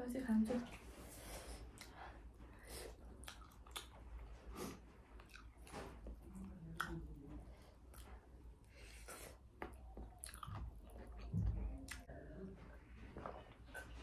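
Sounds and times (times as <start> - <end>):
person chewing food: 1.1 - 12.2, 12.8 - 14.0
small mouth clicks: 3.2 - 4.0.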